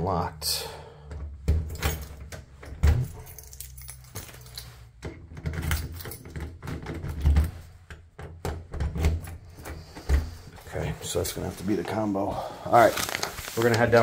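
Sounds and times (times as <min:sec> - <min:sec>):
keys jangling in a lock: 0:01.6 - 0:07.2.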